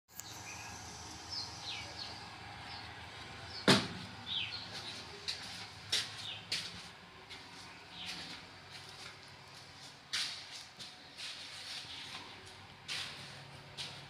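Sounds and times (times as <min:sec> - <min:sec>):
sharp knocks: 0:03.7 - 0:04.0.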